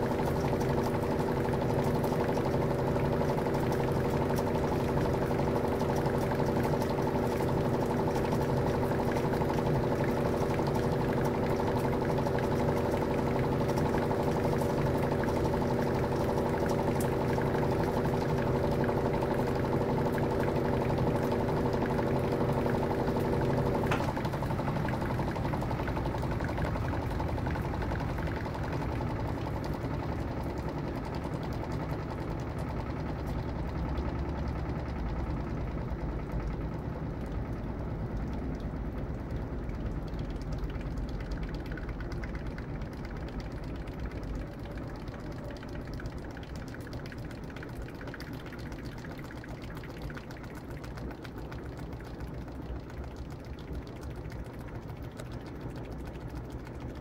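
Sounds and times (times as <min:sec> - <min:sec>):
spinning drum rumble: 0:00.0 - 0:57.0
washer hum: 0:00.0 - 0:57.0
washer click: 0:23.7 - 0:24.4.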